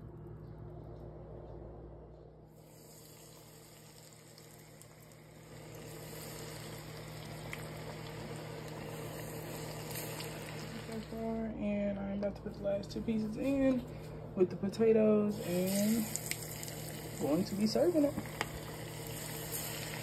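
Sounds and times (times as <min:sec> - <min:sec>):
steady low hum: 0:00.0 - 0:20.0
hot oil sizzling and crackling: 0:02.6 - 0:11.4, 0:15.3 - 0:20.0.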